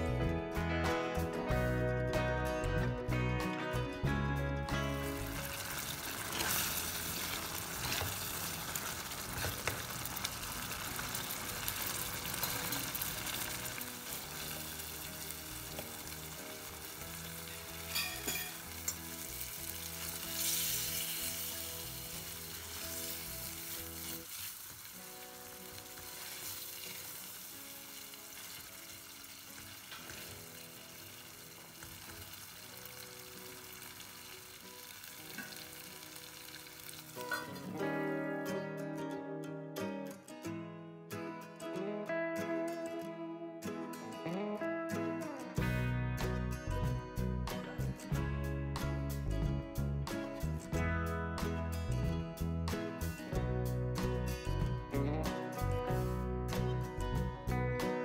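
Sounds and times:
soft background music: 0:00.0 - 0:58.0
prawns sizzling in a pan: 0:04.9 - 0:38.2
stirring clinks and scrapes: 0:17.9 - 0:19.0.

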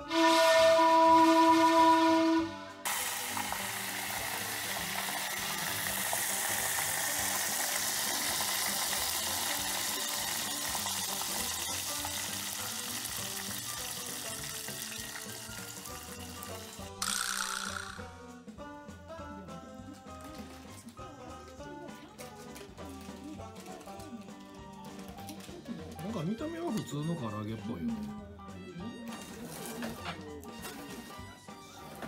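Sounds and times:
chicken deep-frying in oil: 0:02.9 - 0:17.3.

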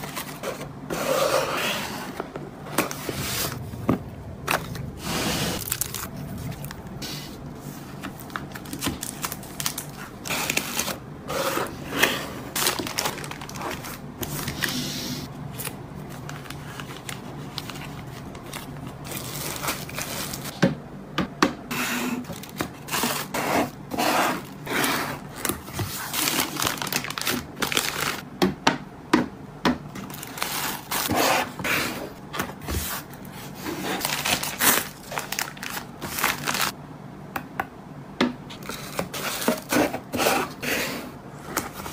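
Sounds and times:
plastic sleeves crinkling: 0:05.6 - 0:11.0, 0:12.4 - 0:14.8, 0:15.5 - 0:20.5, 0:25.2 - 0:28.2, 0:32.9 - 0:36.8.

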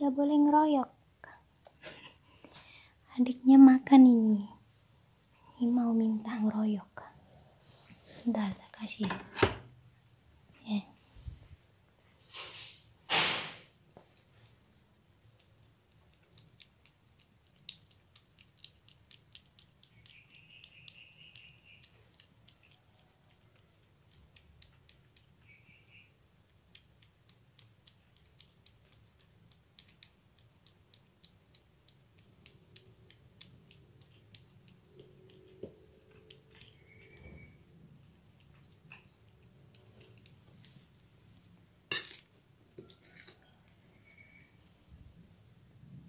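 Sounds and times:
cat chewing and licking: 0:13.9 - 0:45.0.

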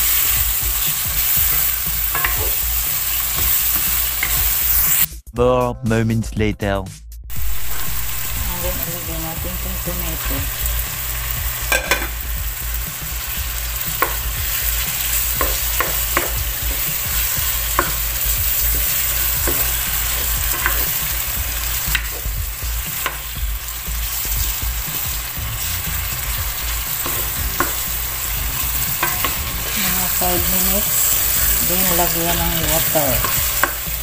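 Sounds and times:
spatula scraping a pan: 0:00.0 - 0:05.0, 0:26.7 - 0:34.0
meat sizzling in a frying pan: 0:00.0 - 0:05.1, 0:07.3 - 0:34.0.

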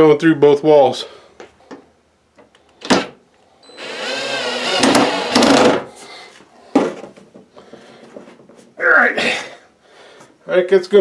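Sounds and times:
cordless drill driving screw: 0:03.6 - 0:05.8.

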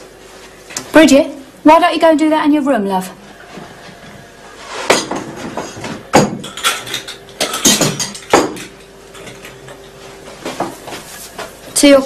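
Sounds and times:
crockery and cutlery clattering: 0:04.9 - 0:09.9.

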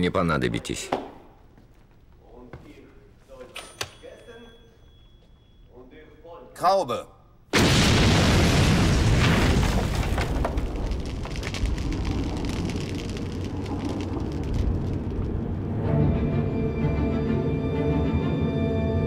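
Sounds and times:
explosion rumble with crackles: 0:07.5 - 0:16.5
tense orchestral music: 0:15.4 - 0:19.0.

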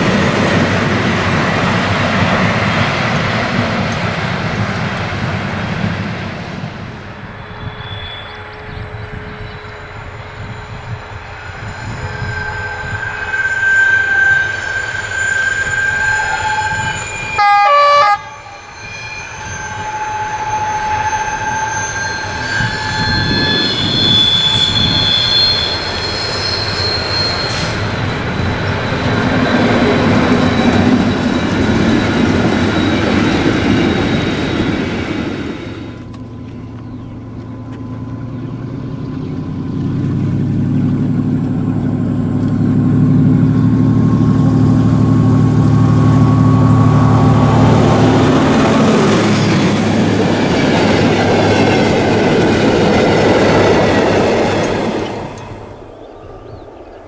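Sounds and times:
high steady whining tones: 0:00.0 - 0:56.8
diesel locomotive engine: 0:00.0 - 0:57.0
train horn blast: 0:07.2 - 0:28.0, 0:42.8 - 0:50.3.

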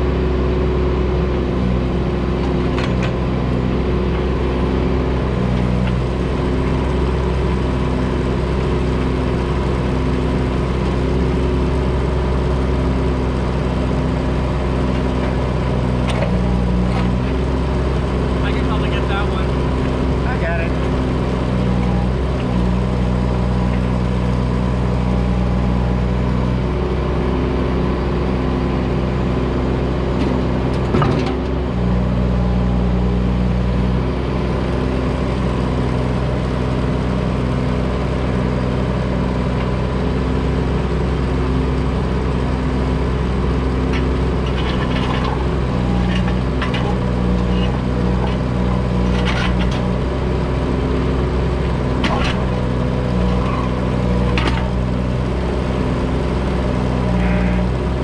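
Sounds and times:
excavator diesel engine running: 0:00.0 - 0:58.0.

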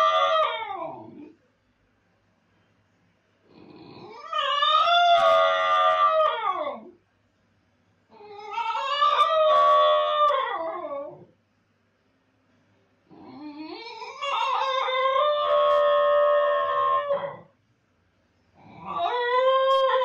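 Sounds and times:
dog howling: 0:00.0 - 0:01.3, 0:04.0 - 0:07.0, 0:08.1 - 0:11.3, 0:13.1 - 0:17.5, 0:18.7 - 0:20.0.

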